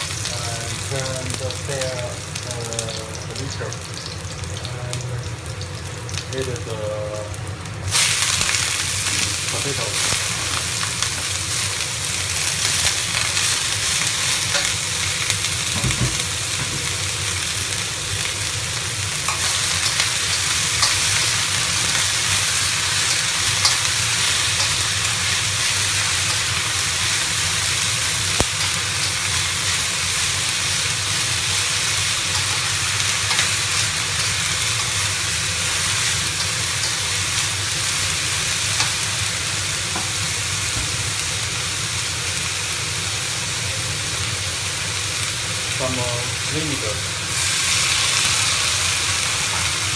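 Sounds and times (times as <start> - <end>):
potatoes sizzling in a wok: 0.0 - 49.9.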